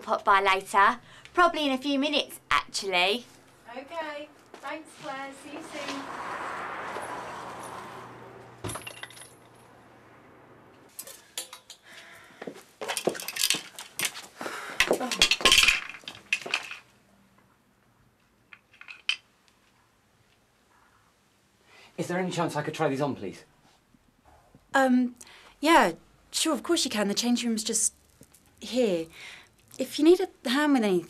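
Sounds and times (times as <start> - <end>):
small hard objects clinking: 12.9 - 14.2, 14.8 - 16.9, 27.6 - 30.0.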